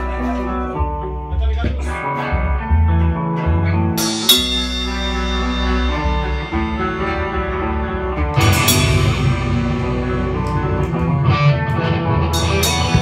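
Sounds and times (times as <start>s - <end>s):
electric guitars ringing notes: 0.0s - 13.0s
cymbal crashing: 4.0s - 11.0s
drum kit hits: 4.0s - 13.0s.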